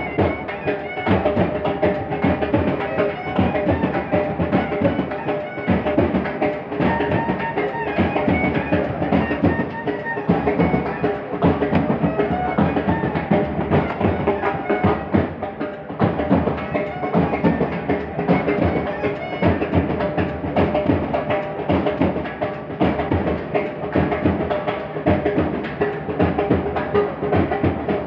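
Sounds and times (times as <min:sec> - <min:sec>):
drums beating: 0:00.0 - 0:28.0
clarinet melody: 0:02.9 - 0:05.9, 0:06.8 - 0:15.2.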